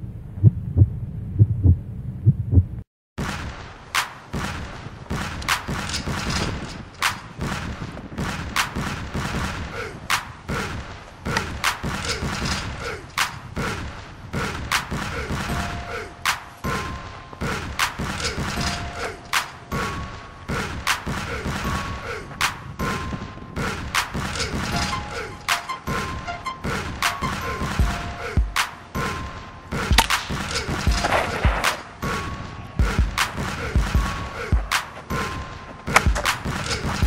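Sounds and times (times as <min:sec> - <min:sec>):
sustained high tones: 0:24.8 - 0:28.2
heavy percussive beat: 0:24.8 - 0:31.8, 0:32.8 - 0:37.0.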